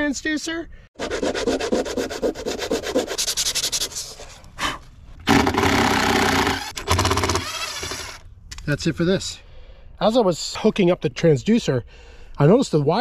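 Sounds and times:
cordless drill running: 5.3 - 8.2.

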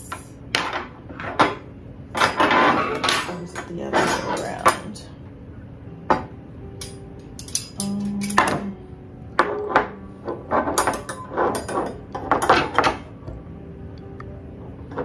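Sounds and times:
metal wire pieces clinking: 6.8 - 8.7.

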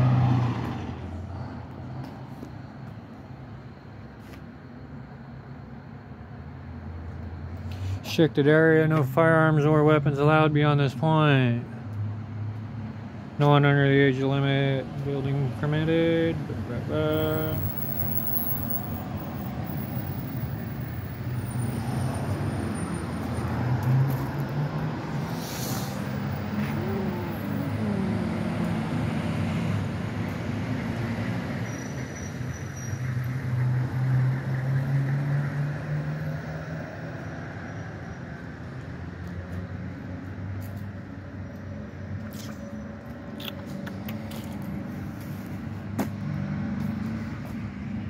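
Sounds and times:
vehicle passing by: 0.0 - 2.4, 16.5 - 48.0
traffic hum: 0.0 - 48.0.

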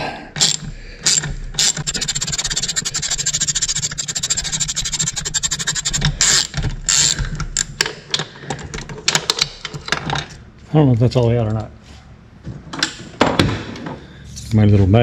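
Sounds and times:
socket ratchet clicking: 0.4 - 7.8.

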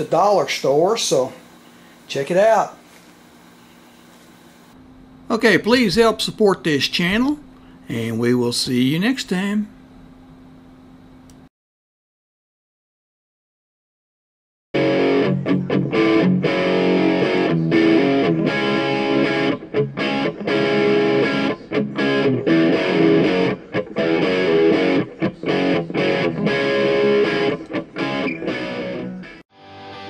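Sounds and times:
distorted electric guitar strumming: 14.8 - 30.0.

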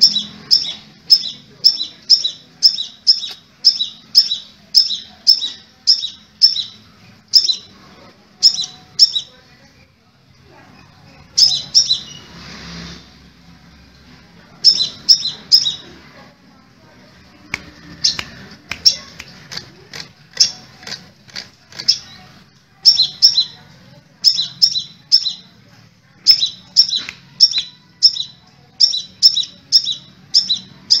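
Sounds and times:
bird chirping: 0.0 - 7.7, 8.4 - 9.4, 11.3 - 12.3, 14.6 - 16.0, 17.8 - 21.1, 21.7 - 23.6, 24.2 - 25.5, 26.2 - 31.0.

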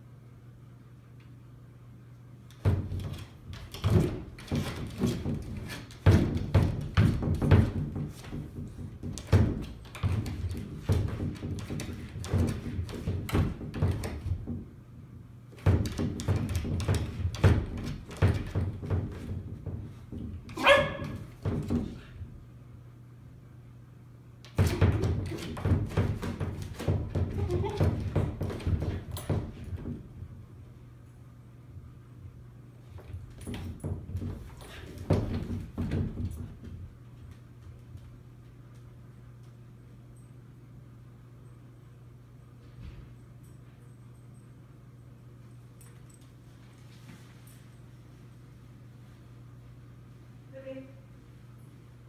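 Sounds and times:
glass doors thumping and rattling: 2.5 - 14.8, 15.6 - 22.0, 24.5 - 30.2, 33.0 - 37.0
dog barking: 20.6 - 21.2.

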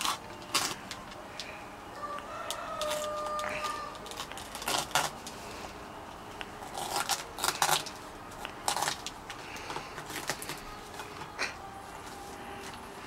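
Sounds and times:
husk cracking and splitting: 0.0 - 1.6, 2.4 - 5.4, 6.4 - 11.6.

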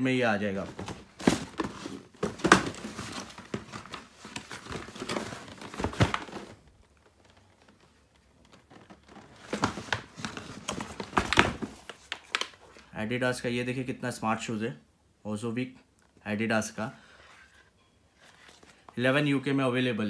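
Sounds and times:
packaging crinkling and rustling: 0.5 - 12.8.

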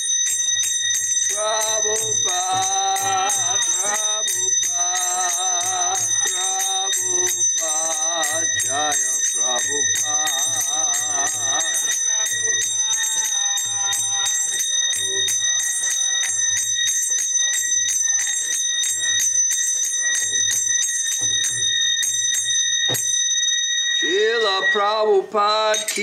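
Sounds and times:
hand cymbals ringing: 0.0 - 24.9
man singing devotional song: 1.3 - 16.2, 24.0 - 26.0.

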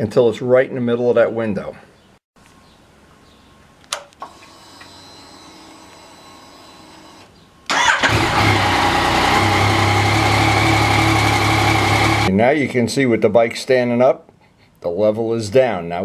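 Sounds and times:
click: 3.8 - 4.9
motorcycle engine starting and idling: 7.0 - 12.3.

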